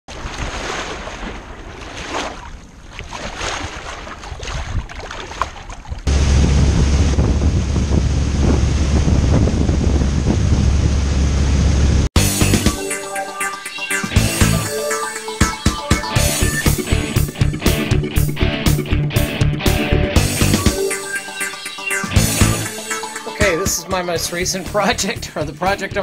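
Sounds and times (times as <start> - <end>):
water washing against hull: 0.1 - 12.1
wind on microphone: 5.8 - 12.1
powerboat running fast: 6.0 - 12.1.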